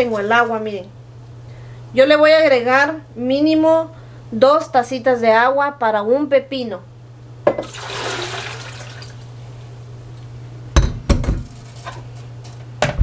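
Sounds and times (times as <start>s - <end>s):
water swirling in blender jar: 7.6s - 9.2s.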